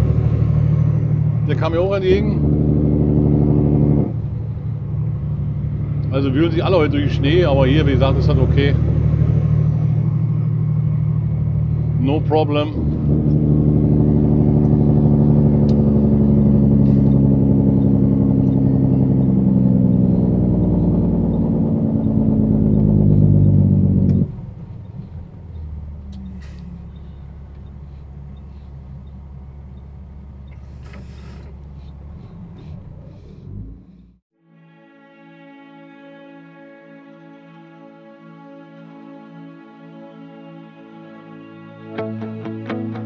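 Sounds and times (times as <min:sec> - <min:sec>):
diesel engine droning in cab: 0:00.0 - 0:34.3.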